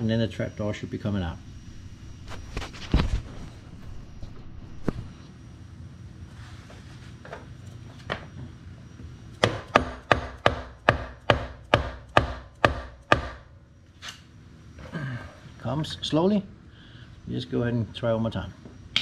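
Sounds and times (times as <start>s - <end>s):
hammer tapping on metal: 9.4s - 13.4s.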